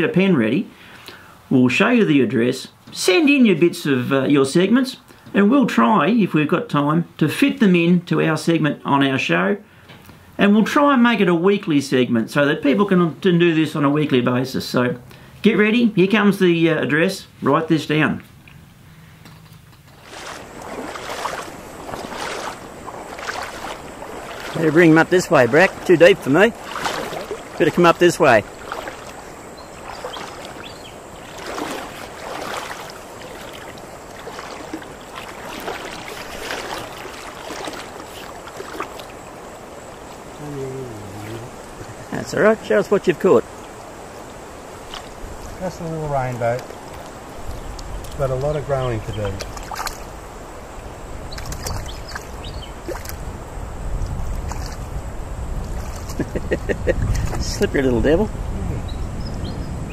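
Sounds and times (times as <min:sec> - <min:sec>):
river water sloshing: 0:18.4 - 0:58.3
small splashes: 0:19.8 - 0:55.0, 0:55.6 - 0:57.7
flowing water rushing: 0:19.9 - 0:58.3.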